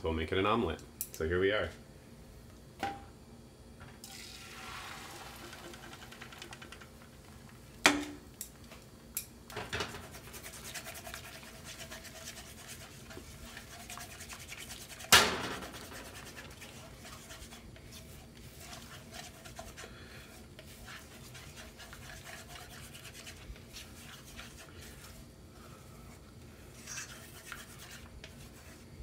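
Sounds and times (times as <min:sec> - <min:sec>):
egg sizzling in frying pan: 0:04.0 - 0:06.5
utensil scraping pan: 0:09.8 - 0:25.2.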